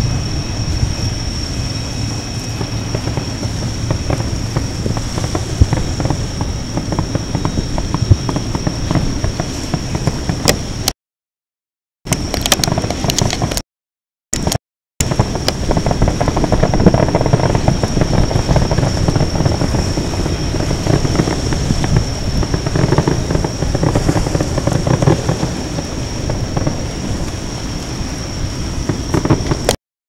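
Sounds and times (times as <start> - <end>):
thin steady high tone: 0.0 - 9.1
distant fireworks booming: 0.0 - 10.8, 15.0 - 29.8
wind on microphone: 0.0 - 10.9, 12.1 - 13.6, 14.4 - 29.8.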